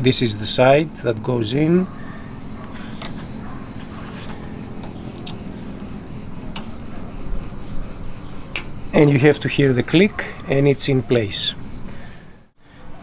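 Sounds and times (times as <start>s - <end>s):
steady background hiss: 0.0s - 13.0s.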